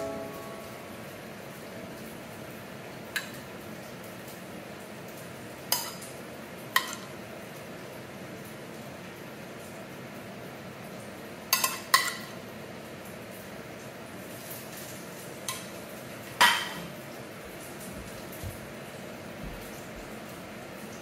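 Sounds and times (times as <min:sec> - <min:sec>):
metal utensil clinking on ceramic dishes: 0:11.5 - 0:12.3.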